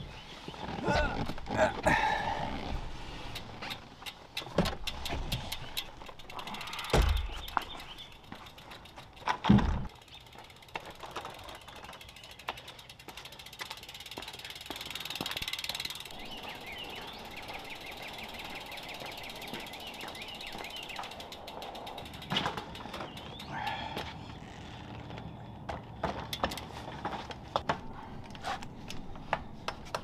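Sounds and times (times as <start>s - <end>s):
bicycle freewheel ticking: 3.3s - 9.3s, 9.9s - 23.6s
bike knocks and clicks: 3.3s - 23.5s, 25.1s - 27.9s, 28.9s - 30.0s.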